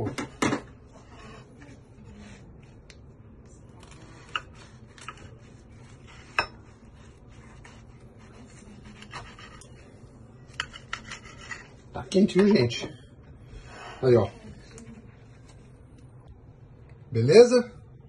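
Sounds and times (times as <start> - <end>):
knife sawing through crisp wrap: 3.8 - 9.6.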